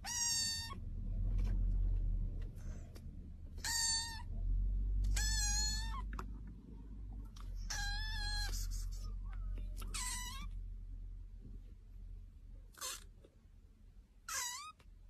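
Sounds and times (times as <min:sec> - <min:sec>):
kitten meowing: 0:00.0 - 0:00.8, 0:03.6 - 0:04.3, 0:05.0 - 0:06.2, 0:07.6 - 0:08.9, 0:09.7 - 0:10.6, 0:12.7 - 0:13.1, 0:14.3 - 0:14.8
steady low rumble: 0:00.0 - 0:12.7.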